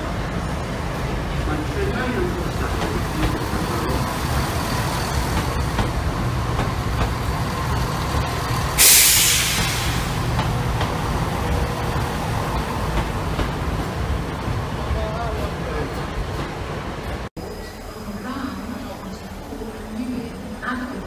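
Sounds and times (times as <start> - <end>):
diesel train rumbling past: 0.0 - 17.3
air brake hiss: 8.8 - 10.3.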